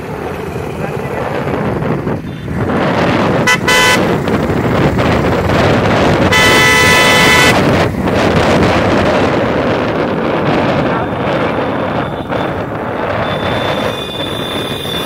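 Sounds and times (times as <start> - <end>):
road and wind noise: 0.0 - 15.0
vehicle horns honking: 3.4 - 4.2, 6.2 - 7.8, 11.9 - 12.6, 13.2 - 15.0.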